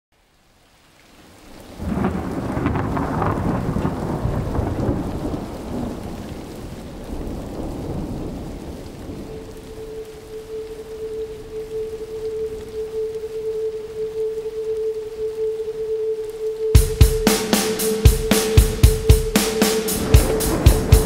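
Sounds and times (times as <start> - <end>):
rain hissing: 0.2 - 21.0
thunder rumble: 1.8 - 21.0
held musical note: 9.3 - 21.0.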